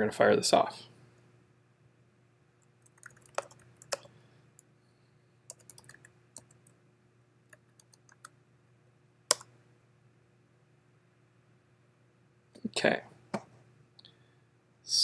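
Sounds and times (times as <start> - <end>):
keyboard typing: 2.8 - 4.1, 5.5 - 6.7, 7.5 - 8.4, 9.3 - 9.5.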